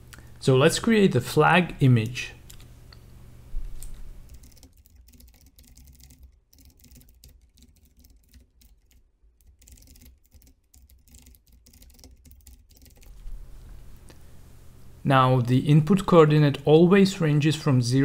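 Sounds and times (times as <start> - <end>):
typing on computer keyboard: 4.2 - 13.2.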